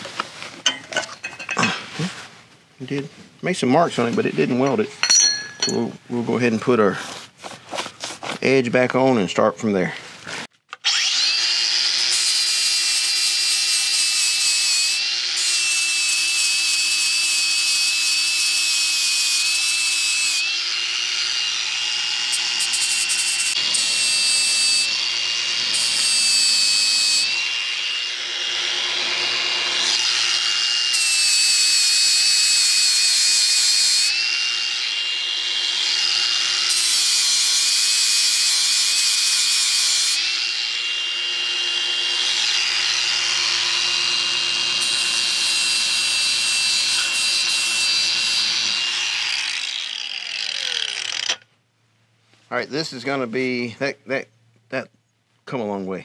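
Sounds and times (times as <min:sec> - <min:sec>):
angle grinder grinding steel: 0:04.2 - 0:06.1, 0:10.8 - 0:51.5.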